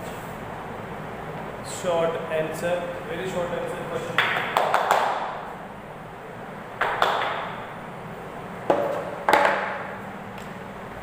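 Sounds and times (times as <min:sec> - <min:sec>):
sharp knocks with room echo: 0:04.2 - 0:05.4, 0:06.8 - 0:07.6, 0:08.7 - 0:10.5.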